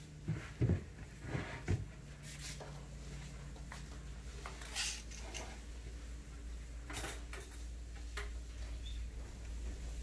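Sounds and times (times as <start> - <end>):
low steady hum: 0.0 - 10.0
small parts clinking: 4.6 - 5.5.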